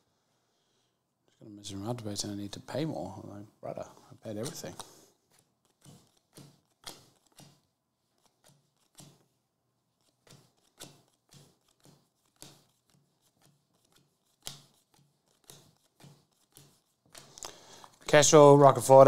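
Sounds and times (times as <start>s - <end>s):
cards clicking off a stack: 4.4s - 9.3s, 10.0s - 18.0s
card snapping: 5.6s - 7.6s, 10.2s - 17.6s.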